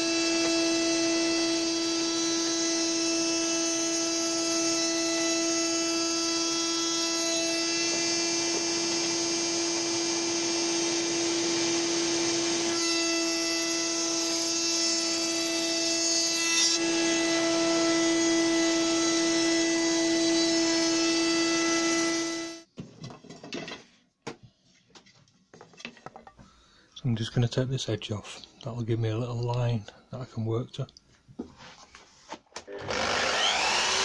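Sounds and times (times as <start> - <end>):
router whining: 0.0 - 22.6, 32.6 - 34.0
router cutting wood: 0.0 - 22.7, 32.6 - 34.0
workshop vacuum running: 4.5 - 14.6, 15.2 - 22.6, 32.6 - 34.0.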